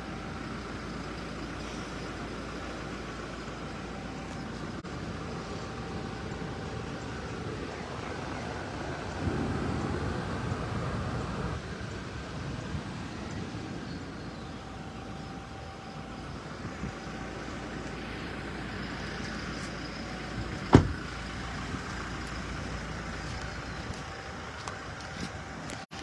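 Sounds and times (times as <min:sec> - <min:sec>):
truck door shutting: 0:20.4 - 0:21.1.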